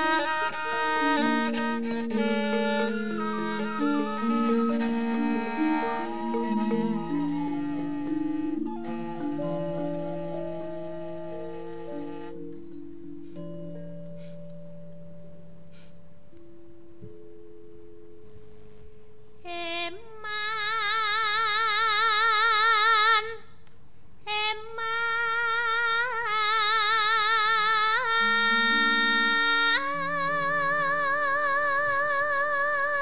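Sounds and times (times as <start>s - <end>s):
soft sustained gamelan tones: 0.0s - 20.0s, 27.9s - 32.8s
woman singing with vibrato: 19.4s - 23.5s, 24.2s - 33.0s.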